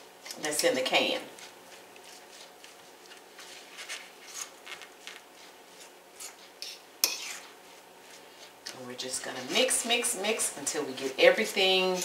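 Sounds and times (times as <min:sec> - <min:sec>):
fork scraping on plate: 0:03.9 - 0:04.9, 0:05.8 - 0:07.6.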